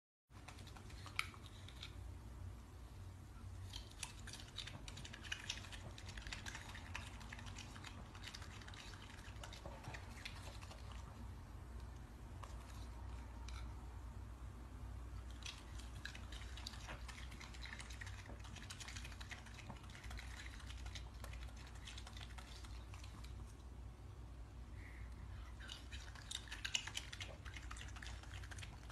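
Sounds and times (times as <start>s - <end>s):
raccoon chewing and smacking: 0.3s - 2.3s, 2.9s - 14.0s, 15.0s - 24.2s, 24.8s - 28.9s
low steady hum: 0.3s - 28.9s.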